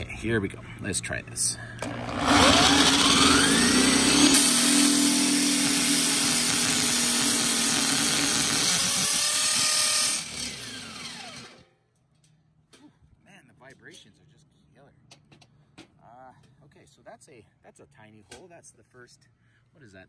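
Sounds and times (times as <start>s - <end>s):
electric drill boring into steel: 1.8s - 11.7s.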